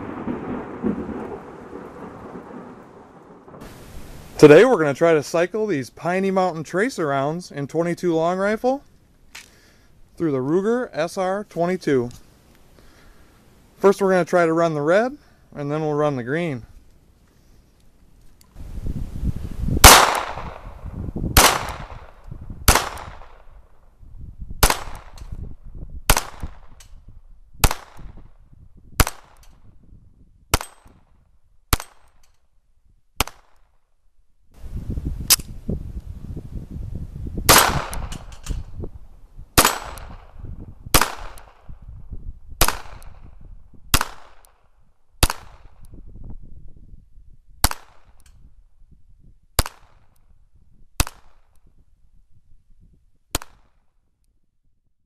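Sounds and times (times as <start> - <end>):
pistol shots: 19.8 - 20.8, 21.4 - 23.5, 24.6 - 25.3, 26.1 - 26.8, 27.6 - 28.2, 29.0 - 29.6, 30.5 - 31.0, 31.7 - 32.2, 37.5 - 38.5, 39.6 - 41.7, 42.6 - 43.3, 43.9 - 44.6, 45.2 - 45.8, 47.6 - 48.2, 49.6 - 50.0, 51.0 - 51.5.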